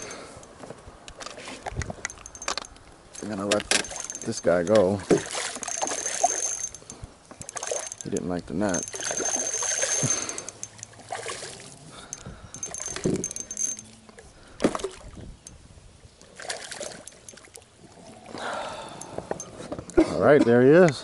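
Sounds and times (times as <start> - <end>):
fish thrashing and splashing: 3.2 - 13.9, 16.3 - 18.4.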